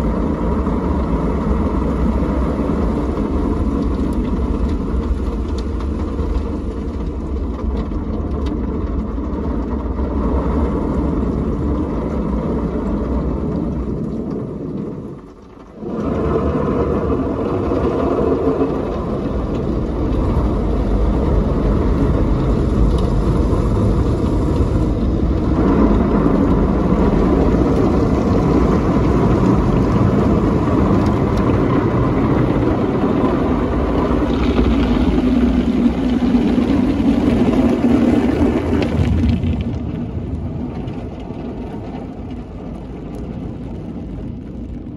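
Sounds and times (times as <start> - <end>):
rushing water: 0.0 - 43.4
water spraying on windscreen: 0.0 - 44.9
car wash machine whirring: 8.6 - 42.4.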